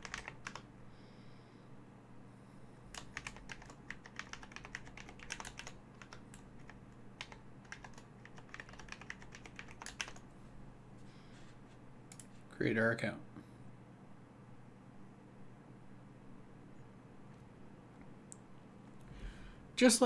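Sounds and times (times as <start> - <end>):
computer keyboard typing: 0.0 - 0.7, 2.9 - 10.3
faint low hum: 0.0 - 20.0.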